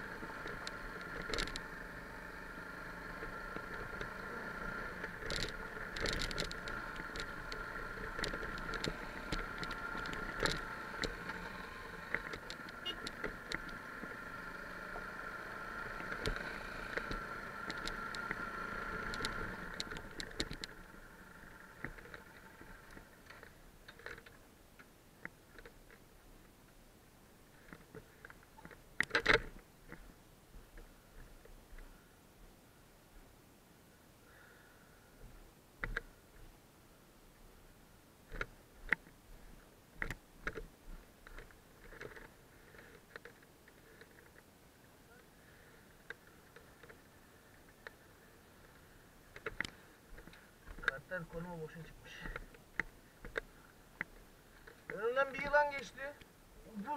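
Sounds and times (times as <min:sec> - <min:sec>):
muffled motorcycle running: 0:00.0 - 0:24.4, 0:38.3 - 0:44.4, 0:45.0 - 0:56.9
gravel stones ticking: 0:00.0 - 0:26.6, 0:38.2 - 0:56.9.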